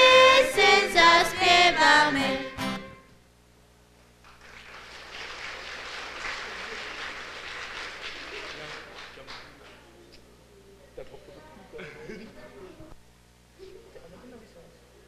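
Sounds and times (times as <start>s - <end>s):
young singers with guitar: 0.0s - 2.8s
audience applause: 4.2s - 9.9s.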